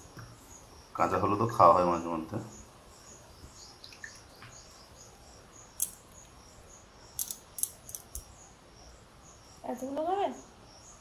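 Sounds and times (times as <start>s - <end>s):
insects chirping: 0.0s - 11.0s
sharp clicks: 7.2s - 8.3s.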